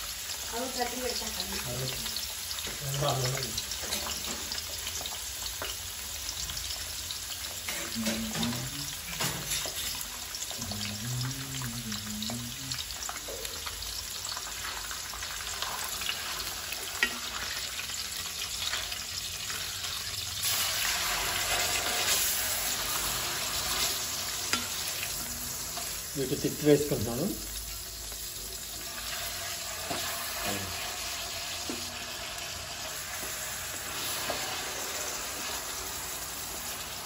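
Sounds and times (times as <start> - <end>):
fish sizzling in oil: 0.0 - 37.0
spatula turning fillet: 14.4 - 26.2.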